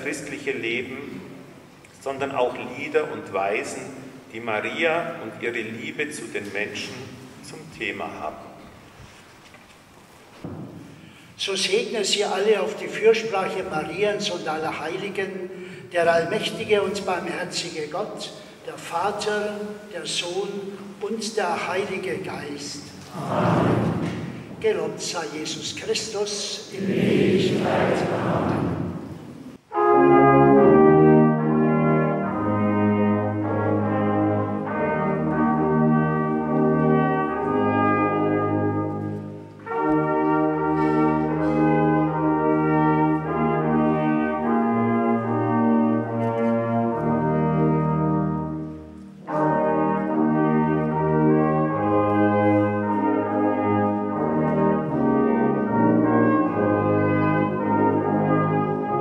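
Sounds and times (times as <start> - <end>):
brass ensemble playing: 0.0 - 9.2, 26.6 - 59.0.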